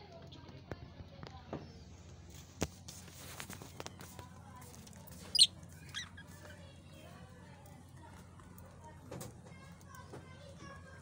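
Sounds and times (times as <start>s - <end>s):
budgerigars chirping: 5.3s - 6.1s
loud bird squawk: 5.3s - 6.1s.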